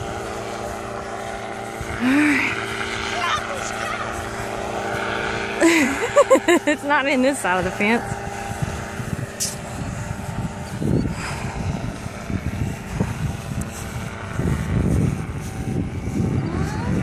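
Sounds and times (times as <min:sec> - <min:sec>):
propeller engine running: 0:00.0 - 0:17.0
wind rumble on microphone: 0:00.0 - 0:17.0.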